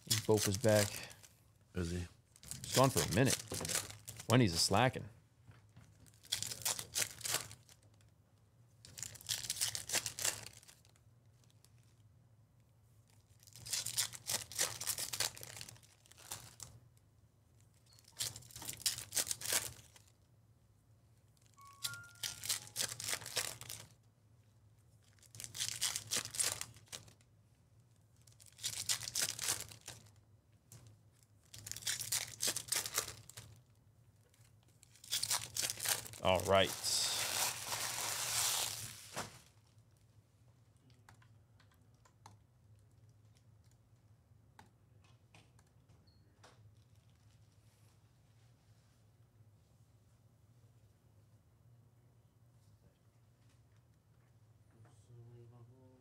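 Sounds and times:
foil wrappers tearing and crinkling: 0:02.4 - 0:04.3, 0:06.2 - 0:07.8, 0:08.9 - 0:11.0, 0:13.4 - 0:16.7, 0:18.1 - 0:20.1, 0:21.9 - 0:24.0, 0:25.1 - 0:27.2, 0:28.4 - 0:30.2, 0:31.5 - 0:33.6, 0:34.9 - 0:39.5.

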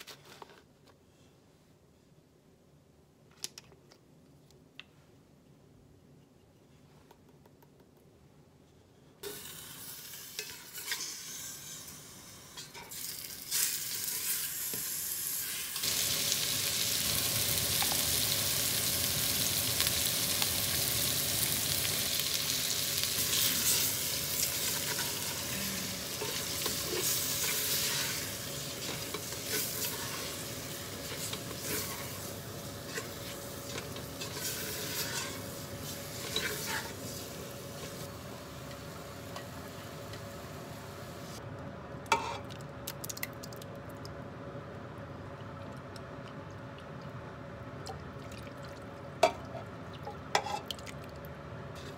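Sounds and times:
meat sizzling in oil: 0:09.2 - 0:38.6
spatula scraping pot: 0:32.8 - 0:35.5, 0:36.1 - 0:37.0.

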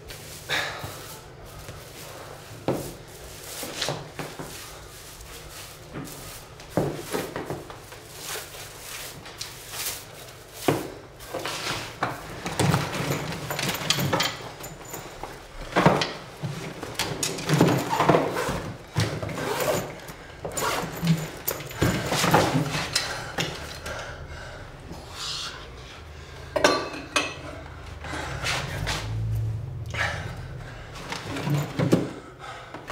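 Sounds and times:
broom sweeping wooden floor: 0:00.0 - 0:12.3, 0:28.3 - 0:29.8.

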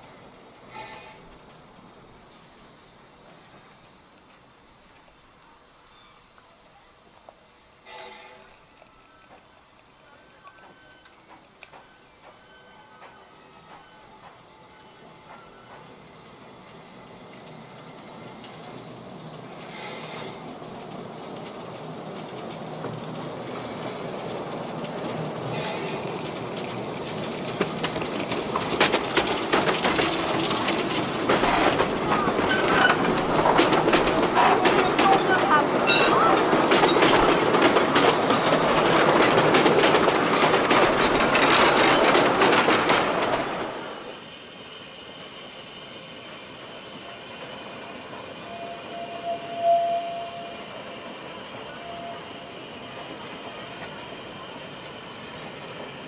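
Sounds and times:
steam hiss: 0:00.0 - 0:56.0
train cars rolling past: 0:00.0 - 0:56.0
wheels clicking over rail joints: 0:15.2 - 0:44.0.

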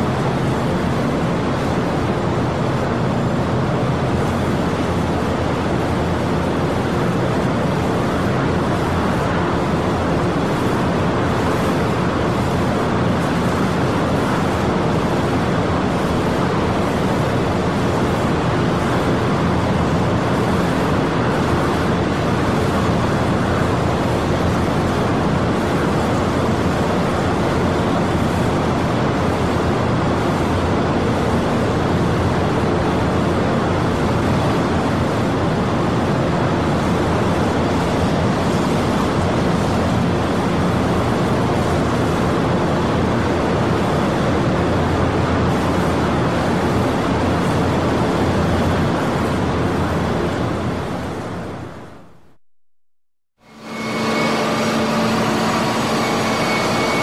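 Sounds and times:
heavy machinery running: 0:53.4 - 0:57.0
low hum: 0:53.4 - 0:57.0.

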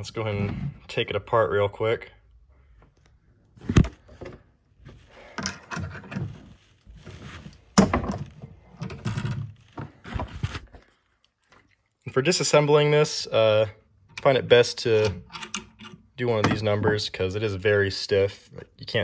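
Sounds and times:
clattering and scraping: 0:03.6 - 0:10.9.

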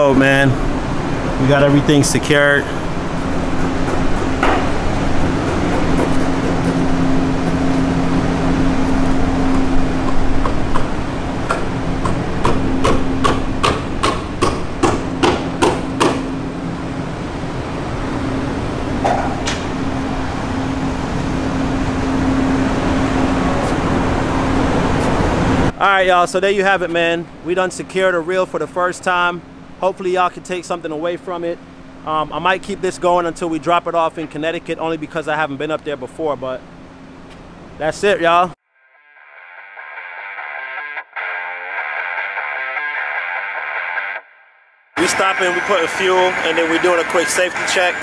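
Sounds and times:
low mechanical hum: 0:00.0 - 0:38.6
sharp knocks: 0:03.6 - 0:04.8, 0:11.5 - 0:16.3.

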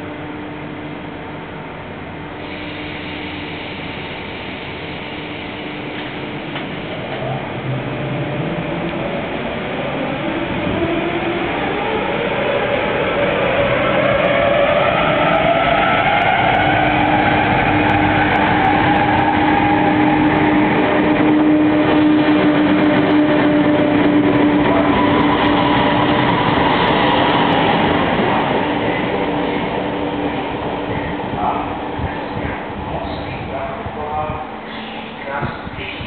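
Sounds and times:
electric train whine: 0:00.0 - 0:36.0
train running and rail noise: 0:00.0 - 0:36.0.

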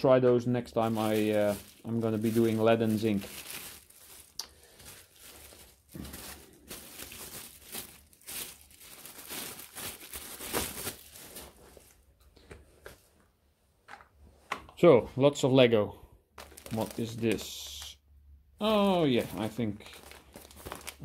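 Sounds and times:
plastic bag crinkling: 0:00.8 - 0:12.1, 0:16.4 - 0:17.9, 0:18.6 - 0:21.0.

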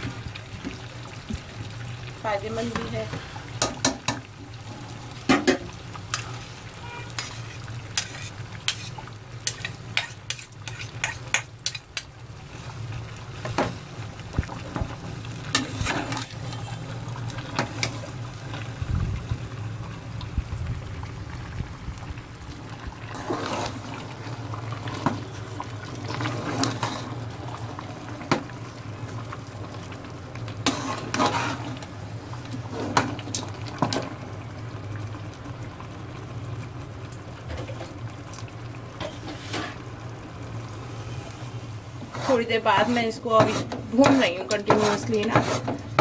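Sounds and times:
paste sizzling in ghee: 0:00.0 - 0:20.1, 0:22.3 - 0:34.0, 0:37.5 - 0:46.0
metal spoon scraping a pot: 0:06.9 - 0:11.9, 0:30.6 - 0:31.7, 0:42.1 - 0:45.8.

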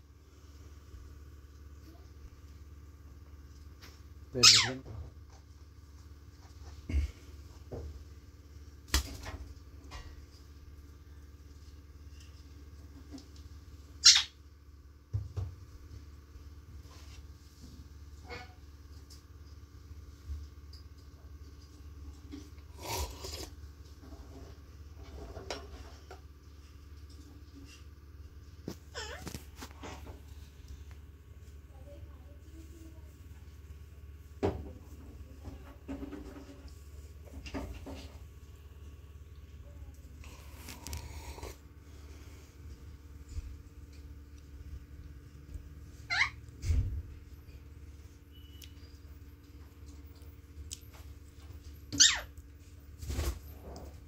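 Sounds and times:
parakeet chirp: 0:04.4 - 0:04.8, 0:14.0 - 0:14.4, 0:46.1 - 0:46.4, 0:52.0 - 0:52.3.

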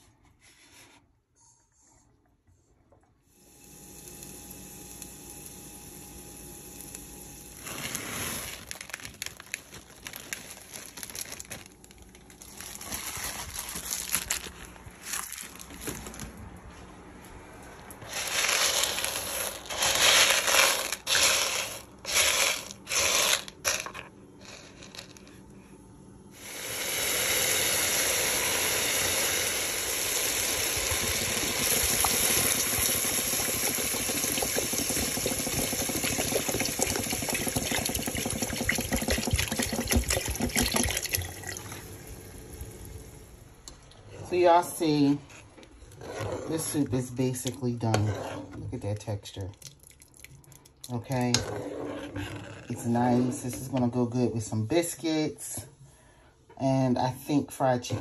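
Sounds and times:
dry peas rattling into pot: 0:18.0 - 0:25.2
water pouring into pot: 0:26.6 - 0:43.2.

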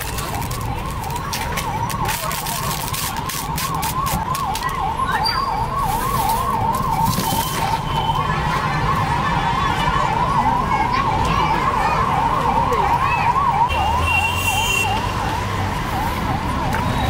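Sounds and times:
low traffic rumble: 0:00.0 - 0:17.0
electronic siren warble: 0:04.0 - 0:07.8.

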